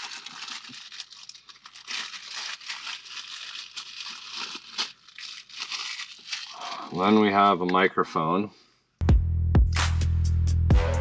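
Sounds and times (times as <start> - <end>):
sharp crackle: 0.0 - 7.1
plastic packaging rustling: 0.0 - 7.6.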